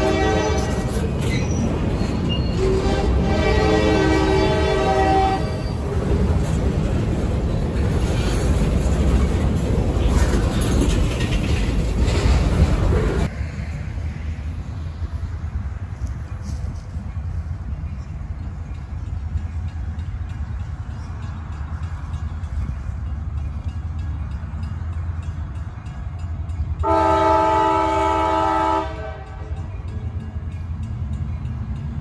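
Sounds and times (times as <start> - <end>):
locomotive horn chord: 0.0 - 1.0, 2.6 - 5.7, 26.8 - 29.6
freight train wheels rumbling: 0.0 - 32.0.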